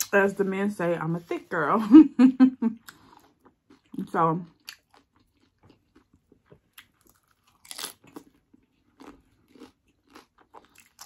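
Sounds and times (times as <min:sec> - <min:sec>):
crunching of taco shell: 0:04.6 - 0:11.0.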